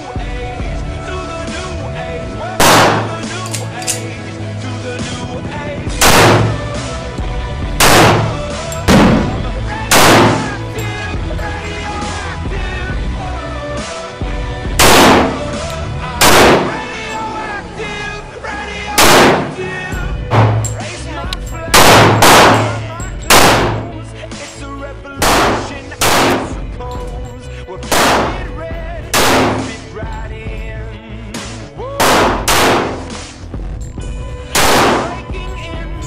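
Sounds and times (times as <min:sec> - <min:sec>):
background music: 0:00.0 - 0:36.0
pistol shots: 0:02.6 - 0:04.0, 0:06.0 - 0:06.8, 0:07.8 - 0:10.8, 0:14.8 - 0:17.0, 0:19.0 - 0:19.7, 0:20.3 - 0:20.8, 0:21.7 - 0:24.0, 0:25.2 - 0:26.7, 0:27.8 - 0:28.5, 0:29.1 - 0:29.9, 0:32.0 - 0:33.2, 0:34.6 - 0:35.3.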